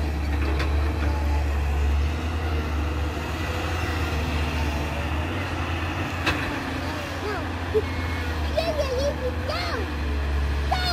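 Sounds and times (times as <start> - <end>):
excavator diesel engine under load: 0.0 - 10.9.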